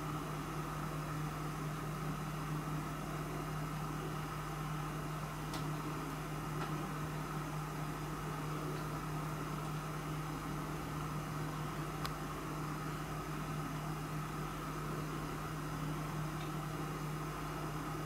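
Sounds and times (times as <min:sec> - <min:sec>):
steady low hum: 0:00.0 - 0:18.0
faint click: 0:12.0 - 0:12.2.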